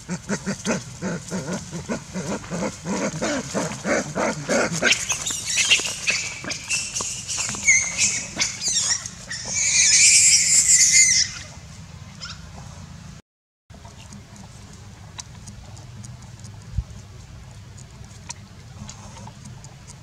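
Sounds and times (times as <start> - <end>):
monkeys screaming and squealing: 0.4 - 11.6.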